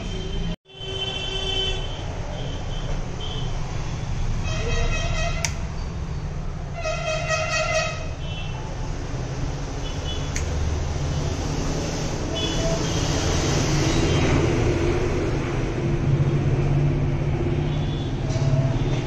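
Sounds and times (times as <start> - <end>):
vehicle horn honks: 0.0 - 3.4, 6.8 - 8.6
low traffic rumble: 0.0 - 19.0.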